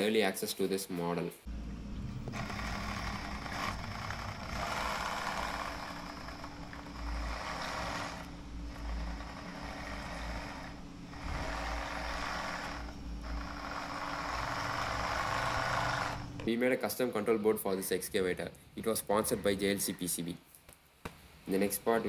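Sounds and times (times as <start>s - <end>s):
model excavator pump motor: 1.5s - 16.5s.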